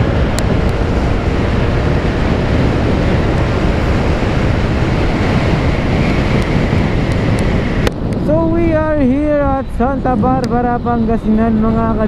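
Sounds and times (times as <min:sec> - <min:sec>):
wind rushing over microphone: 0:00.0 - 0:12.0.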